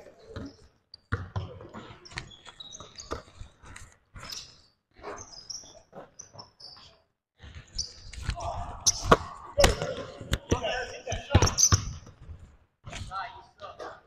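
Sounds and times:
sneakers squeaking: 0.0s - 13.1s
basketball bouncing: 0.3s - 3.3s, 8.9s - 12.2s.

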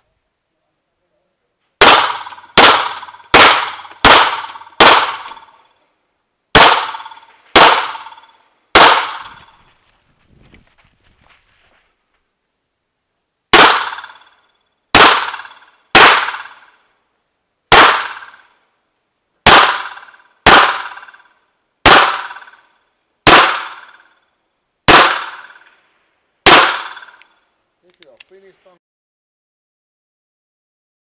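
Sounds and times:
pistol shots with echo: 1.8s - 5.6s, 6.6s - 9.6s, 13.5s - 16.8s, 17.7s - 18.5s, 19.4s - 24.1s, 24.9s - 25.7s, 26.4s - 27.2s.

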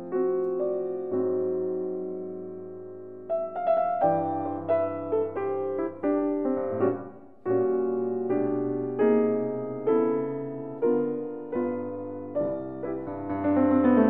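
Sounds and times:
slow piano chords: 0.0s - 14.0s.

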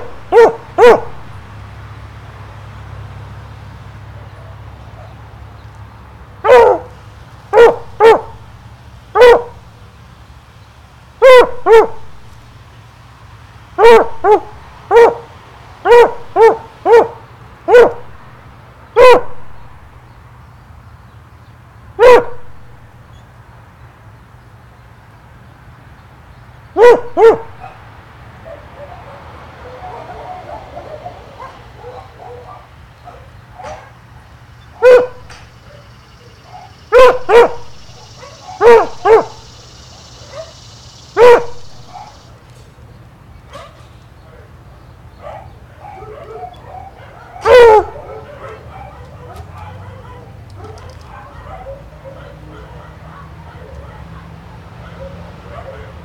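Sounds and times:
dog barking: 0.0s - 1.6s, 4.2s - 5.3s, 6.4s - 8.6s, 9.2s - 9.7s, 11.2s - 12.3s, 13.8s - 18.4s, 19.0s - 19.8s, 22.0s - 22.8s, 26.8s - 42.3s, 43.5s - 43.9s, 45.2s - 56.0s.

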